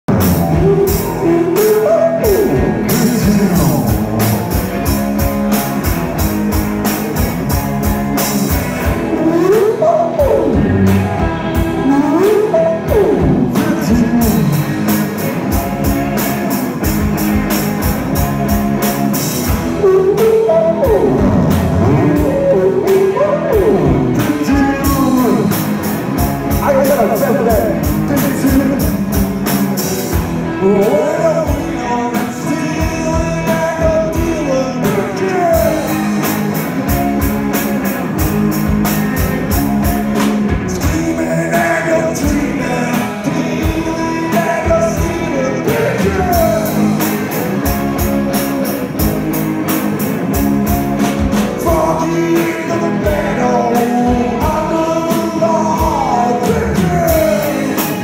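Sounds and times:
drum kit beat: 0:00.0 - 0:58.0
electric guitars: 0:00.0 - 0:58.0
person singing: 0:00.1 - 0:04.5, 0:08.8 - 0:14.7, 0:19.4 - 0:25.7, 0:30.0 - 0:36.2, 0:40.6 - 0:49.1, 0:51.4 - 0:58.0.

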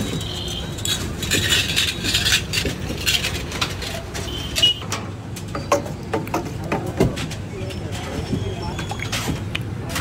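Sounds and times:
metal moulds clinking and rattling: 0:00.0 - 0:10.0.

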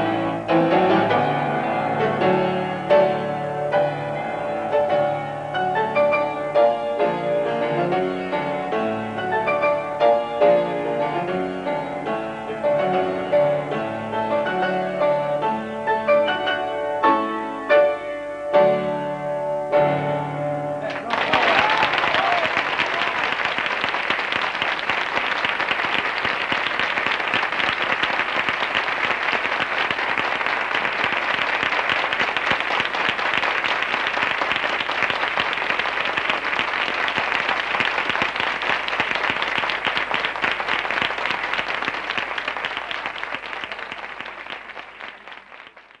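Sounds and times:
audience applauding: 0:20.8 - 0:46.0.

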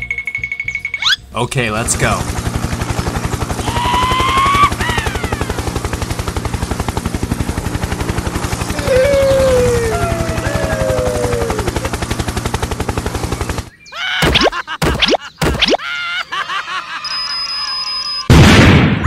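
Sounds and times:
squeaky cartoon voice sounds: 0:01.0 - 0:01.2
helicopter rotor chopping: 0:01.0 - 0:15.8.

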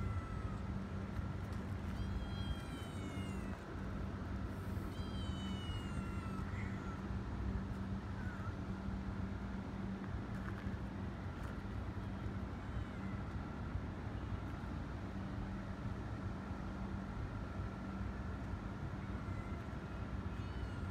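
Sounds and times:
kitten meowing: 0:01.9 - 0:03.6, 0:04.8 - 0:07.1.

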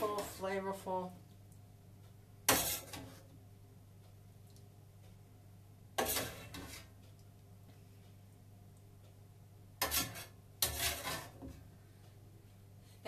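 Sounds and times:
spoon scraping a frying pan: 0:02.5 - 0:03.2, 0:06.0 - 0:07.0, 0:09.8 - 0:11.6.

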